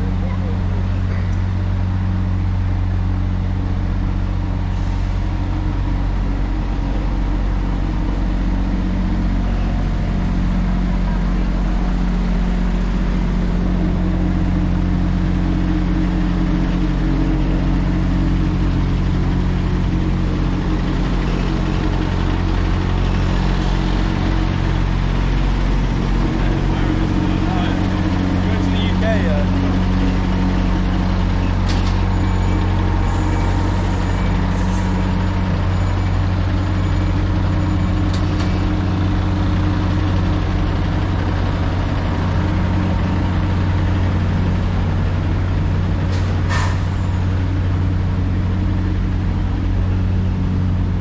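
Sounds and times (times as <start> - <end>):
lorry engine humming: 0.0 - 51.0
street noise: 0.0 - 51.0.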